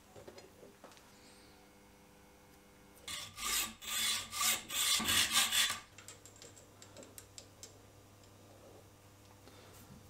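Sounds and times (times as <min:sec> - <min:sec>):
hacksaw cutting metal: 0:03.1 - 0:05.9.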